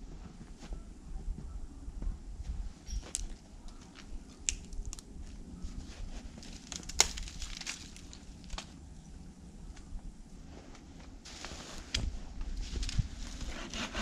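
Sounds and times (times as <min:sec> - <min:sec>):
dry branches snapping: 0:03.0 - 0:05.4, 0:06.3 - 0:08.9, 0:11.8 - 0:13.4
footsteps crunching in snow: 0:10.4 - 0:13.6.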